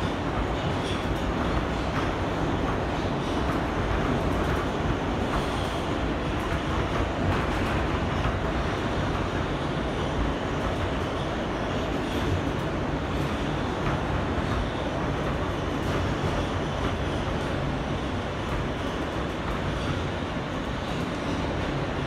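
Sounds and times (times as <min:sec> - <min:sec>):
subway wheels rumbling on rails: 0:00.0 - 0:22.0.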